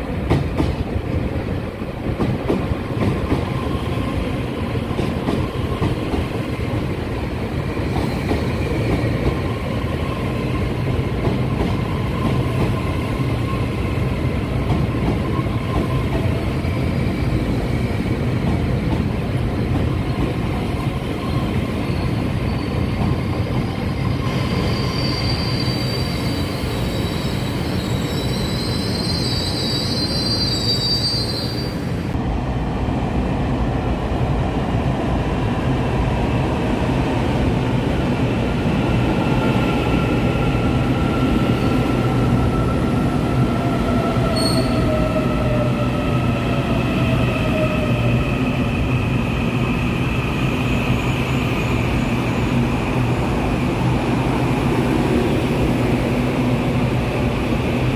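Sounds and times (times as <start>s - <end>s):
train squealing: 20.1s - 32.1s, 39.2s - 53.2s.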